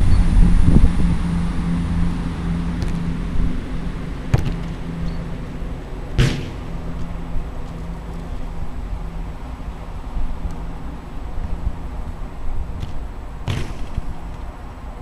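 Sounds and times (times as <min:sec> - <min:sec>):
wind rumble on microphone: 0:00.0 - 0:15.0
football kick thud: 0:04.3 - 0:04.7, 0:06.2 - 0:06.6, 0:12.8 - 0:14.0.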